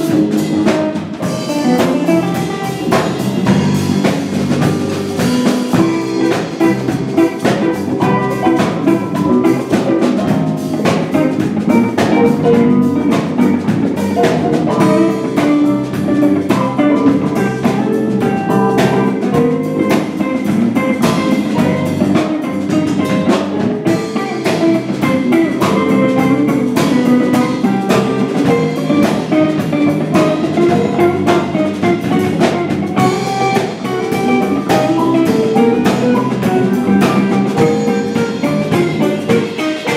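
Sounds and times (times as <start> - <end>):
drum kit beat: 0.0 - 39.9
live band instrumental: 0.0 - 39.9.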